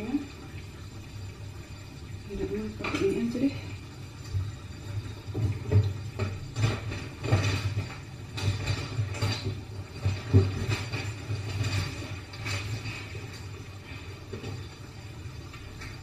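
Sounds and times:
kitchen work knocks and clatter: 5.2s - 14.8s.

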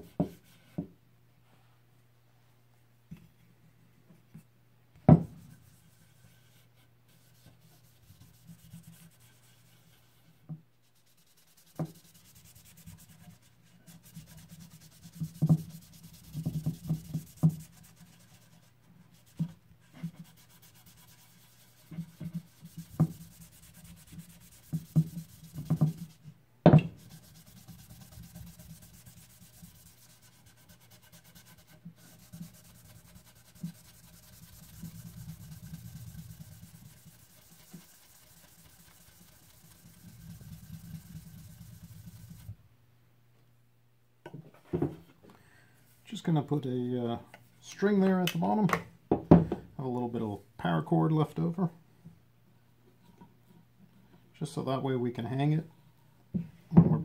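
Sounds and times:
cloth rubbing wax on wood: 5.5s - 26.3s, 26.9s - 42.6s.

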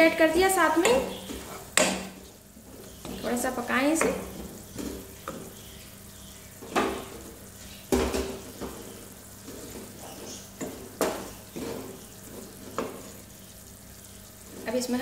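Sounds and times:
masala sizzling in oil: 0.0s - 15.0s
wooden spatula scraping pan: 1.1s - 1.8s, 8.3s - 13.2s.

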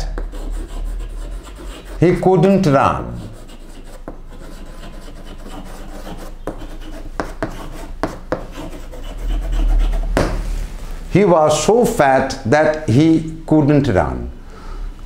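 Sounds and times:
chalk tapping on board: 0.0s - 0.5s, 3.4s - 9.2s, 10.1s - 10.4s
chalk scratching on chalkboard: 0.0s - 10.6s.

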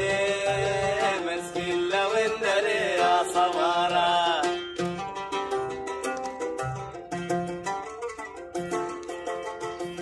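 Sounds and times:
man singing: 0.0s - 5.0s
oud melody: 0.0s - 10.0s.

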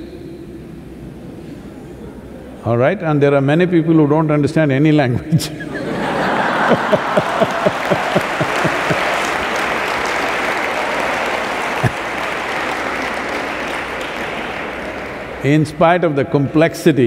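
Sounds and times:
man laughing: 5.1s - 9.3s
audience applauding: 6.0s - 15.6s.

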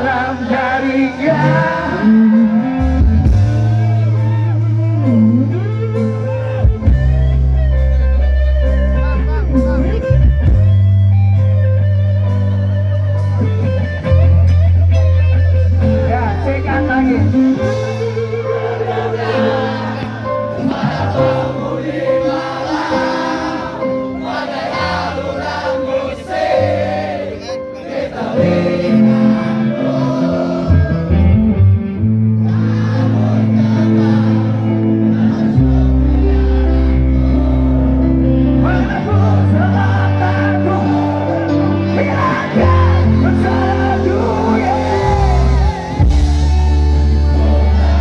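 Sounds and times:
person singing: 0.0s - 6.2s, 35.6s - 48.0s
electric guitar: 0.0s - 25.1s, 26.0s - 48.0s
sustained bass notes: 0.0s - 27.8s, 28.4s - 48.0s.

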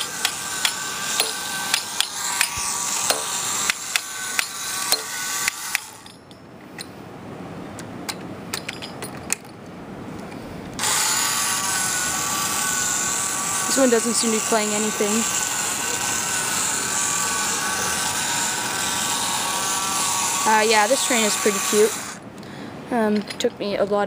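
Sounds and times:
toy motor whirring: 0.0s - 6.1s, 10.8s - 22.2s.

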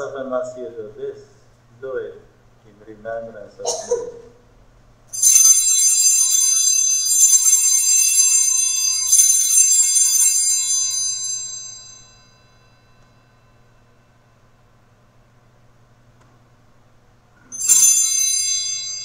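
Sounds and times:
small bells ringing: 5.1s - 14.3s, 17.4s - 19.0s.

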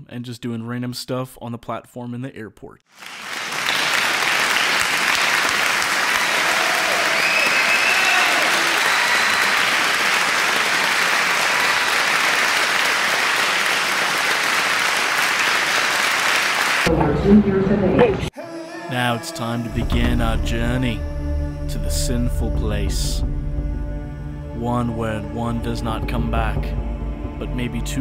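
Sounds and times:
crowd clapping: 2.9s - 17.0s
voices cheering: 3.2s - 16.9s.

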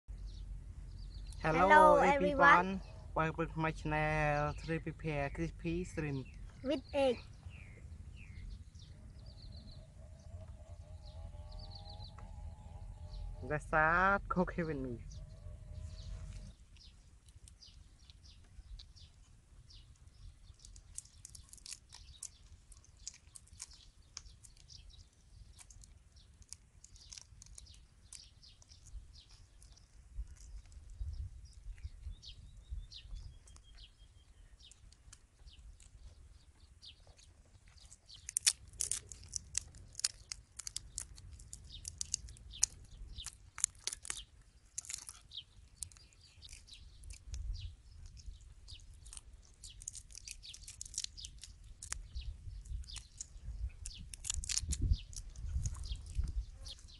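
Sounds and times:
shrimp shells crackling: 20.4s - 24.8s, 25.4s - 30.8s, 37.7s - 56.3s.

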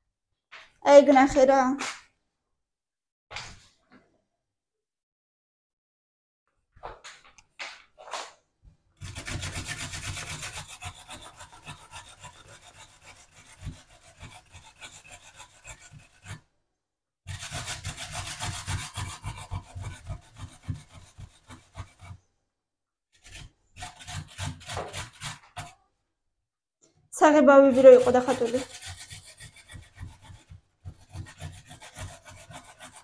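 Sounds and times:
food scraping on box grater: 9.0s - 16.4s, 17.3s - 22.2s, 23.2s - 25.8s, 27.6s - 33.0s.

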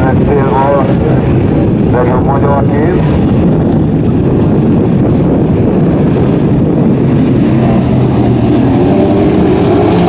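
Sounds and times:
racing engines running hard: 0.0s - 10.0s.

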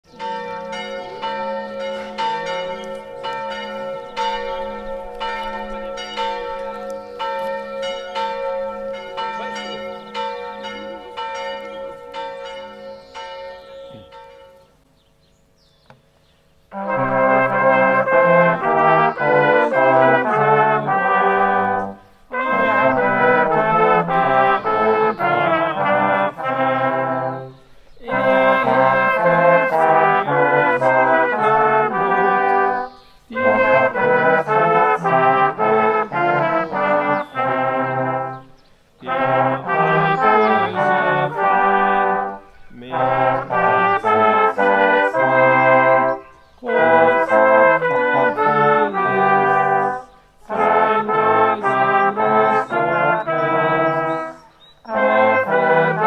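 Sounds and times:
brass choir playing chords: 0.0s - 14.7s, 16.7s - 56.0s
church bells ringing: 0.0s - 14.8s, 16.7s - 56.0s.

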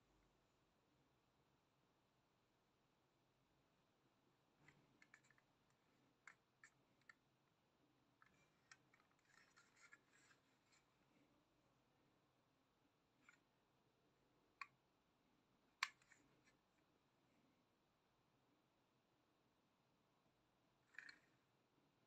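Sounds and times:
toy model clicking in hand: 15.8s - 16.2s.

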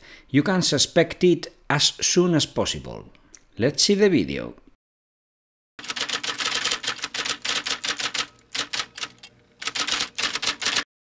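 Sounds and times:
keyboard typing clicks: 5.8s - 10.9s.

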